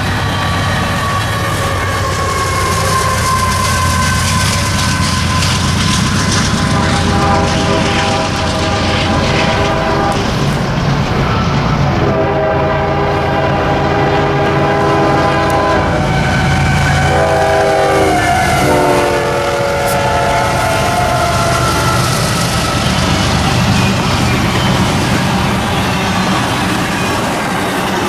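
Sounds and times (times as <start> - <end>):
diesel locomotive rumble: 0.0 - 28.0
train wheels passing: 0.0 - 28.0
locomotive air horn blasts: 1.0 - 10.5, 12.0 - 22.9.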